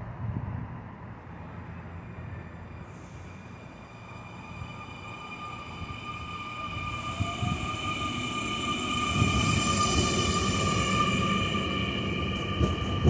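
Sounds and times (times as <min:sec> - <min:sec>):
electric train whining: 0:01.2 - 0:13.0
train wheels knocking on rails: 0:10.0 - 0:13.0.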